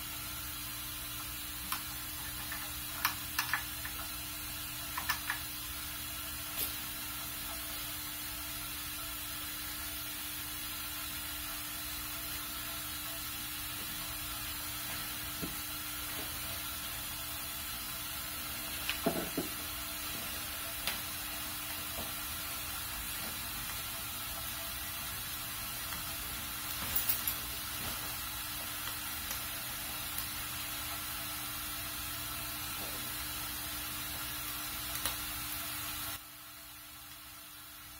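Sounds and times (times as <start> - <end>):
steam boiler hiss: 0.0 - 37.9
small parts clicking: 1.7 - 4.0.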